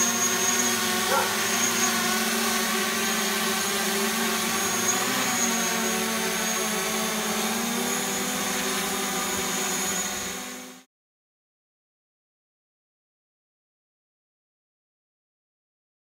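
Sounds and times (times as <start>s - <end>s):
drones hovering: 0.0s - 10.8s.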